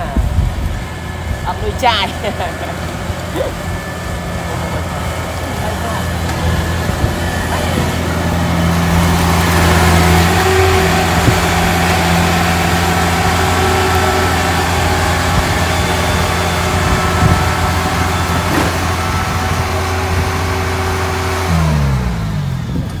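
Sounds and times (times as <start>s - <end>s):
combine harvester running: 0.0s - 23.0s.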